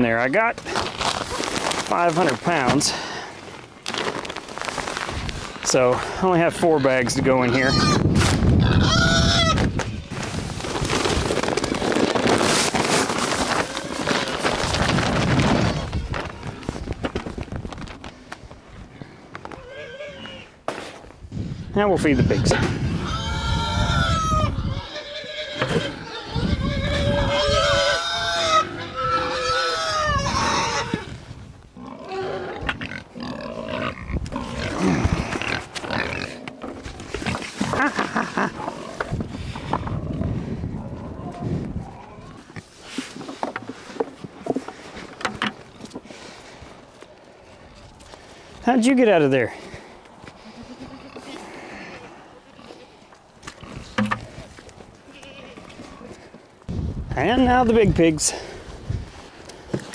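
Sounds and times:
farm animal call: 0:06.5 - 0:10.2, 0:19.4 - 0:20.6, 0:21.8 - 0:31.2
pigs squealing and grunting: 0:06.6 - 0:10.2, 0:19.5 - 0:20.6, 0:22.0 - 0:31.2, 0:31.8 - 0:36.6.

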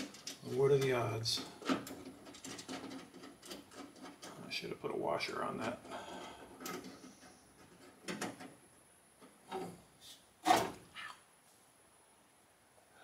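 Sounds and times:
hand tools clicking and knocking: 0:00.0 - 0:04.4.

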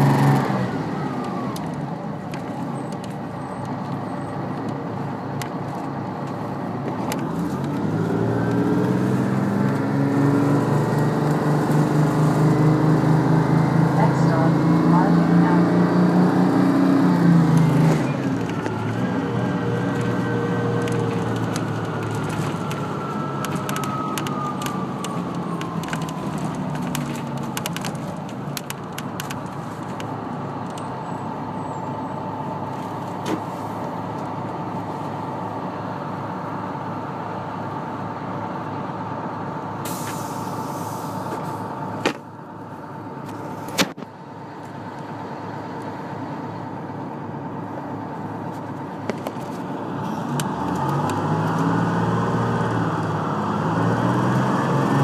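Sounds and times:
bus engine idling: 0:00.0 - 0:08.4, 0:17.1 - 0:51.1
bus drivetrain whine: 0:00.0 - 0:55.0
hiss of air: 0:39.8 - 0:41.2.

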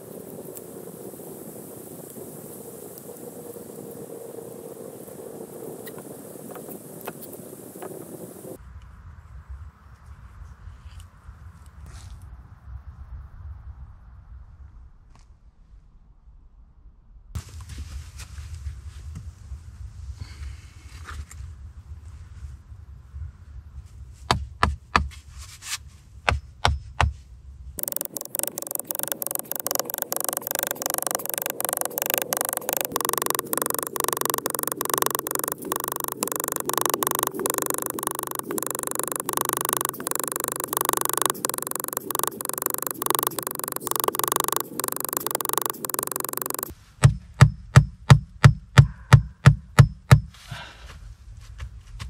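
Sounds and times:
hatchet knocking wooden stakes: 0:24.3 - 0:25.2, 0:26.3 - 0:27.2, 0:47.0 - 0:50.4.

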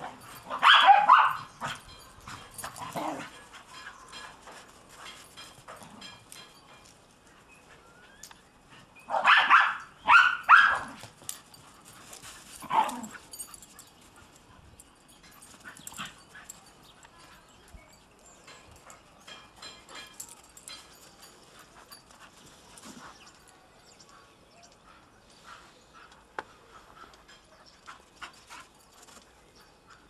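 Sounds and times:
dog barking: 0:00.6 - 0:01.5, 0:09.1 - 0:11.0.

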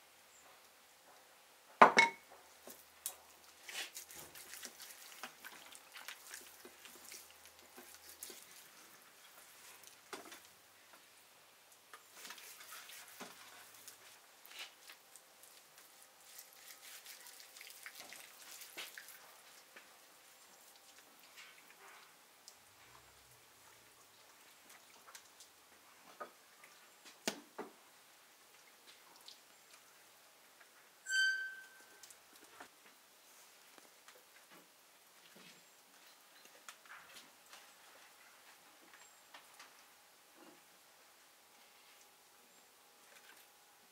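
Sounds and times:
hands squelching raw meat: 0:03.5 - 0:10.0, 0:14.7 - 0:19.7
loud ringing clink: 0:31.1 - 0:32.0.

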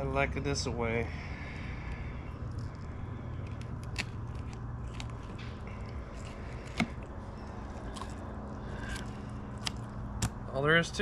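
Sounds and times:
knife crunching through fish: 0:07.7 - 0:08.2.

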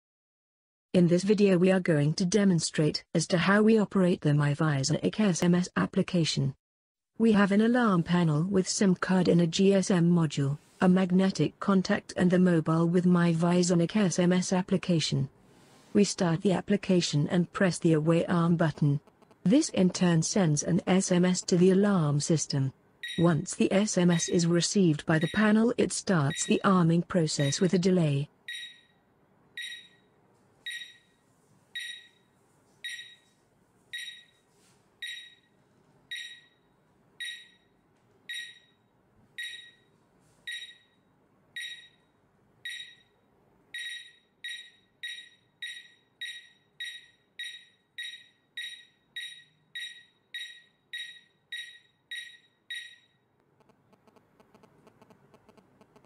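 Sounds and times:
alarm panel short high beeps: 0:28.5 - 0:28.9, 0:29.6 - 0:30.0, 0:30.7 - 0:31.1, 0:31.8 - 0:32.2, 0:32.9 - 0:33.2, 0:34.0 - 0:34.4, 0:35.0 - 0:35.5, 0:36.1 - 0:36.6, 0:37.2 - 0:37.6, 0:38.3 - 0:38.7, 0:39.4 - 0:39.8, 0:40.5 - 0:41.0, 0:41.6 - 0:42.0, 0:42.7 - 0:43.1, 0:43.8 - 0:53.1.

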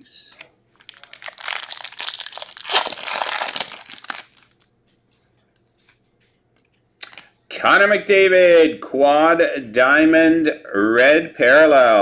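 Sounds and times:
foil wrapper tearing and crinkling: 0:00.8 - 0:04.6.

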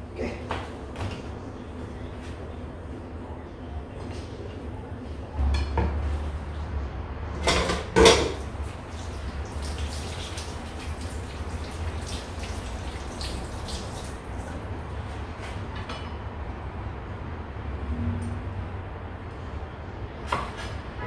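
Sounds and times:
tap water running into sink: 0:08.2 - 0:14.6
water splashes: 0:08.4 - 0:14.6.

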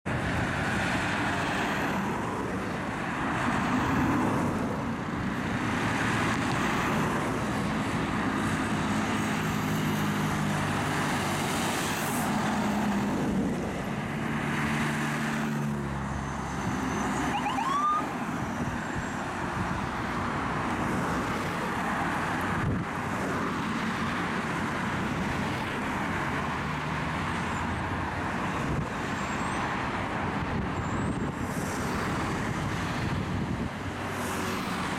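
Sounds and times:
road traffic with cars passing: 0:00.0 - 0:34.9
ambulance siren: 0:16.6 - 0:18.2
short rising siren chirp: 0:16.8 - 0:18.1.

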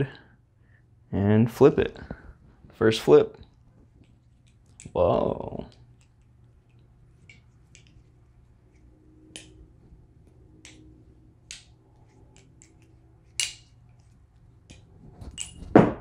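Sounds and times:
balisong clicks and taps: 0:10.2 - 0:14.9.

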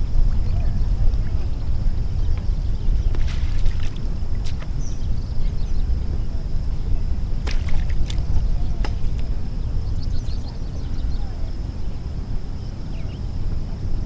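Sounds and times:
wind on microphone: 0:00.0 - 0:14.0
fish splashing in water: 0:03.1 - 0:04.8, 0:07.4 - 0:09.0.

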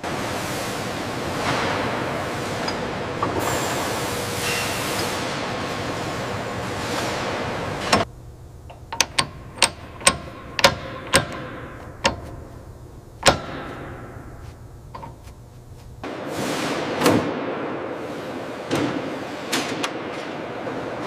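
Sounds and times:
workshop noise: 0:00.0 - 0:21.0
wrench clicking on metal: 0:08.7 - 0:12.6, 0:13.2 - 0:14.1.

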